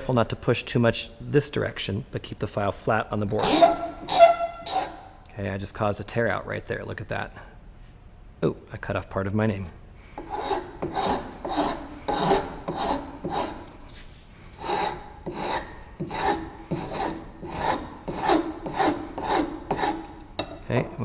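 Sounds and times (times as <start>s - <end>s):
metal file scraping wood: 3.3s - 5.2s, 10.2s - 13.8s, 14.6s - 20.5s.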